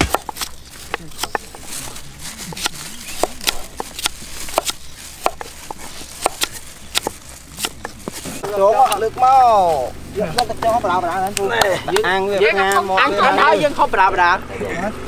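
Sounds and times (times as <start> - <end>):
knife chopping on wooden block: 0.0 - 1.9, 2.5 - 9.3
faint voices: 0.8 - 4.0.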